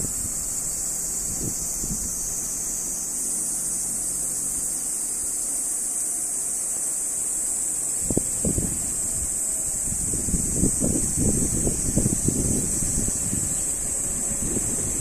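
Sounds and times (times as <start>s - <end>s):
wind gusts on microphone: 0.0s - 2.9s, 8.0s - 15.0s
steady high-pitched hiss: 0.0s - 15.0s.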